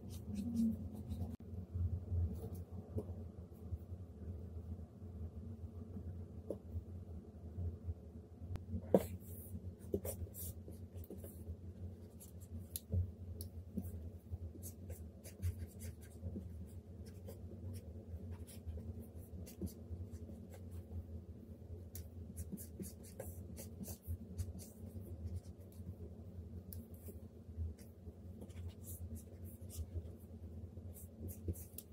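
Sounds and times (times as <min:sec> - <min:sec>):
stylus scratching on screen: 0:00.0 - 0:01.4
low steady hum: 0:00.0 - 0:31.9.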